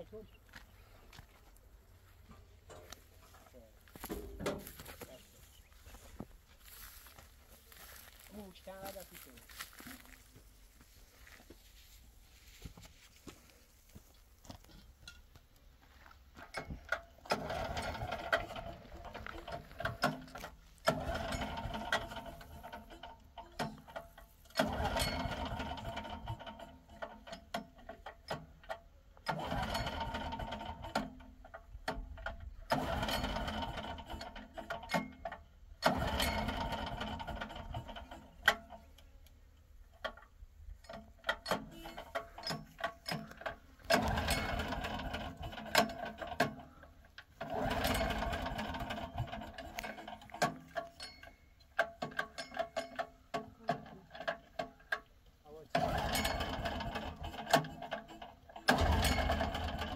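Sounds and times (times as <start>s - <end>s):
small machine clicking rattle: 40.0s - 59.9s.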